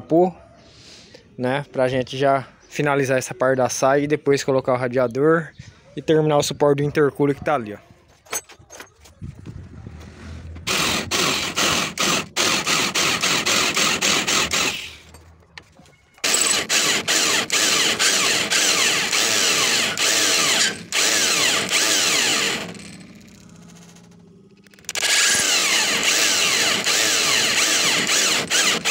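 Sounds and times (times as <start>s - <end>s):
electric drill grinding through metal: 9.8s - 15.3s, 16.2s - 28.9s.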